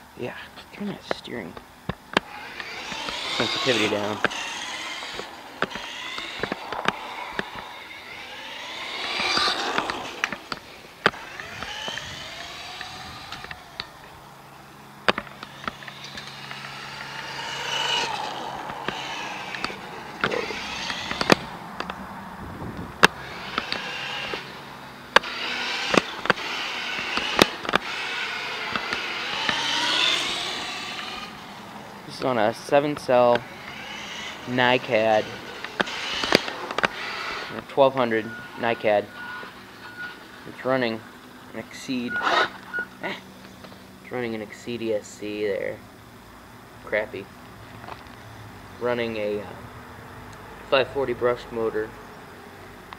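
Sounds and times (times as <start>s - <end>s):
electric motor whining: 1.9s - 43.8s
sharp clicks and knocks: 4.2s - 8.2s, 9.1s - 13.9s, 15.0s - 17.2s, 18.0s - 22.0s, 22.8s - 24.5s, 25.1s - 28.0s, 28.7s - 29.6s, 35.4s - 37.7s.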